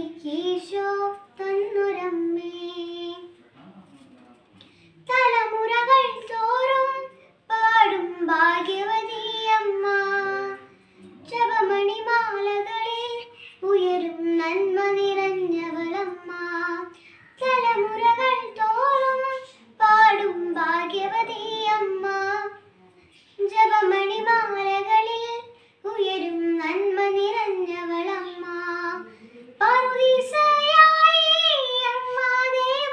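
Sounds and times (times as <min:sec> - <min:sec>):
girl breathing between phrases: 0:29.0 - 0:29.6.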